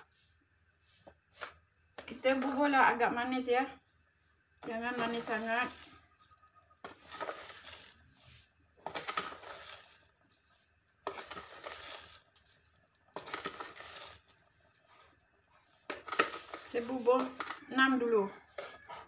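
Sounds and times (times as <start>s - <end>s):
spoon scooping sugar: 3.8s - 19.0s.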